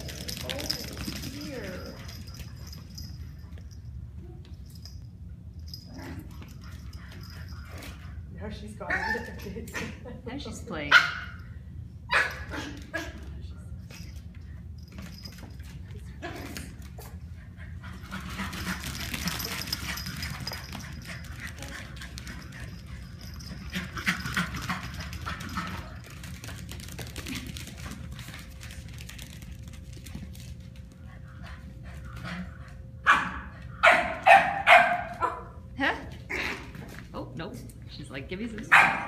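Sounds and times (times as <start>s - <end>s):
puppies scuffling and yipping: 0.0s - 9.9s, 12.1s - 32.8s.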